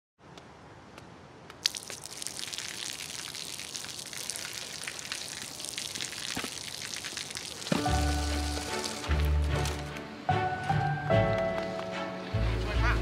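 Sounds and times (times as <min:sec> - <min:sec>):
water drips: 0:01.4 - 0:09.7
water stream pouring and splashing: 0:01.5 - 0:10.2.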